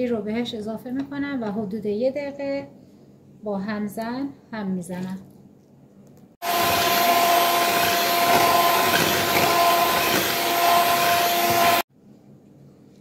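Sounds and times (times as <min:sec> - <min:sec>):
electric hand mixer whirring: 0:06.4 - 0:11.9.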